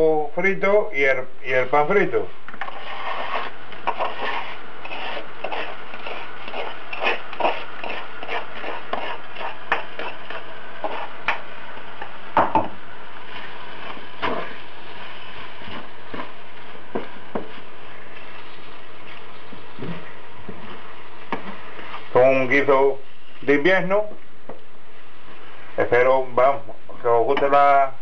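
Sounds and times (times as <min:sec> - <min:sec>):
wooden spoon scraping and knocking: 0:02.5 - 0:12.7, 0:13.4 - 0:14.6, 0:15.5 - 0:17.7.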